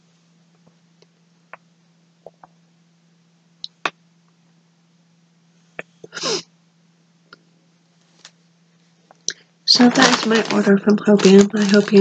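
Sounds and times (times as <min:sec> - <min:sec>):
steady low hum: 0:00.0 - 0:12.0
hands handling yarn: 0:09.7 - 0:12.0.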